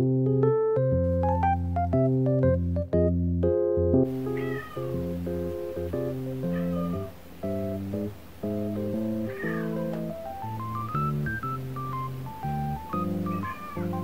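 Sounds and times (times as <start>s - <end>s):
background piano music: 0.0s - 14.0s
cat meowing: 4.2s - 5.2s, 6.4s - 7.1s, 9.2s - 10.1s, 13.2s - 14.0s.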